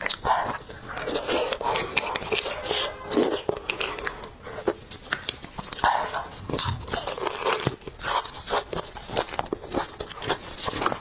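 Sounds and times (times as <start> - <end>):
metal spoon scraping bone: 0.0 - 4.8
chewing: 0.0 - 11.0.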